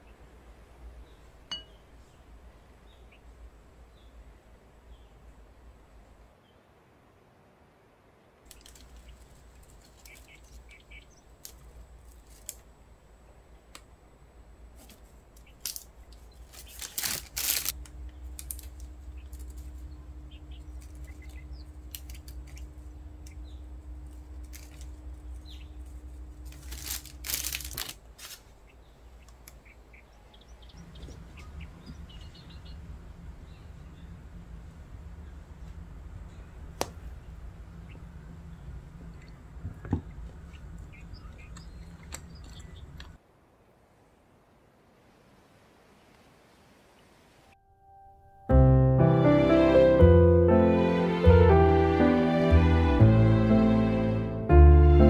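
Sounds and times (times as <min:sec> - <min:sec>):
low steady hum: 0:00.0 - 0:55.0.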